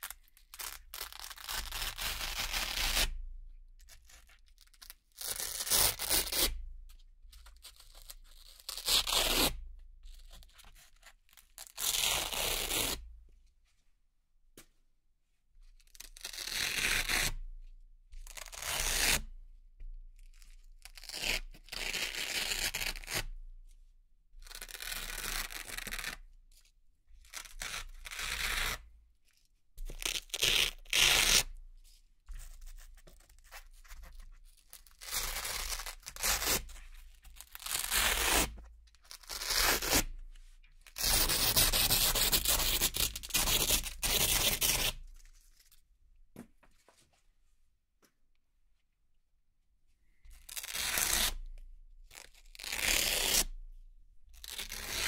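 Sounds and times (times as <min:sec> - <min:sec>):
velcro strips ripping: 0:00.0 - 0:03.1, 0:04.7 - 0:06.5, 0:29.9 - 0:31.5, 0:34.8 - 0:40.2, 0:40.8 - 0:45.8, 0:50.4 - 0:51.5, 0:52.1 - 0:53.5, 0:54.4 - 0:55.0.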